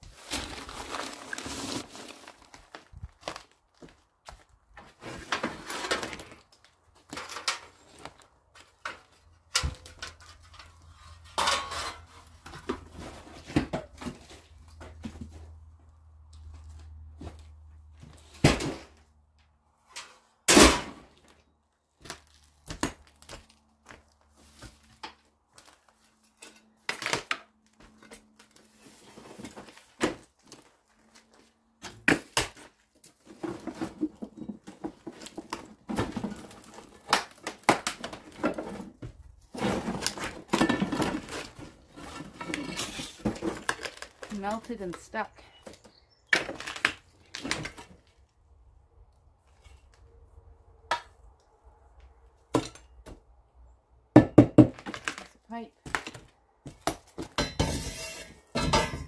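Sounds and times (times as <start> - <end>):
debris knocking and clattering: 33.2 - 44.3, 56.7 - 59.0.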